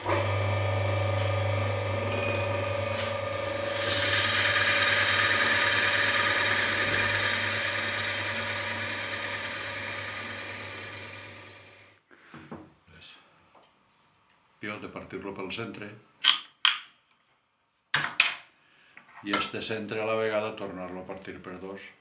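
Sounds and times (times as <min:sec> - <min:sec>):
lathe motor hum: 0:00.0 - 0:12.0
drill bit hissing through wood: 0:03.4 - 0:12.0.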